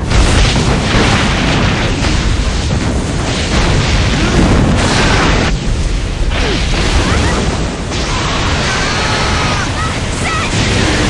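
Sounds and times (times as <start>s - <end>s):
explosion rumbling blast: 0.0s - 11.0s.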